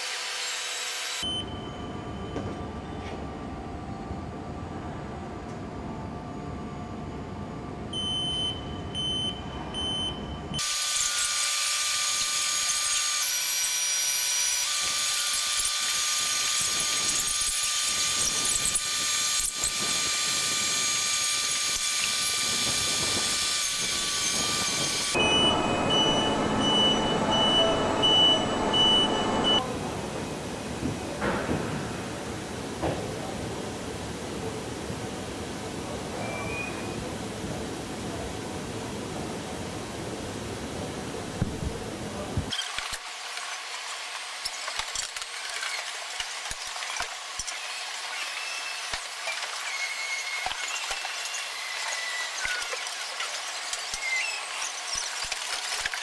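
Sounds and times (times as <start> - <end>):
electronic warning beeps: 1.2 - 2.6, 7.9 - 10.6, 25.2 - 29.6
machinery whirring and whining: 10.5 - 34.6, 35.2 - 56.0.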